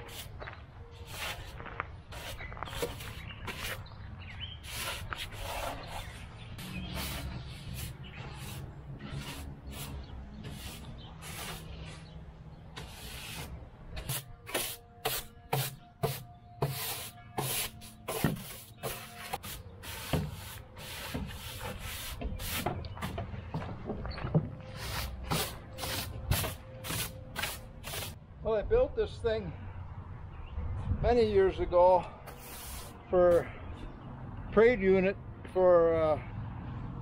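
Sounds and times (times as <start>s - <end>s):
broom sweeping wooden boards: 0.0s - 0.4s, 1.0s - 3.8s, 4.6s - 12.2s, 12.8s - 23.2s, 24.7s - 28.2s, 32.3s - 33.6s.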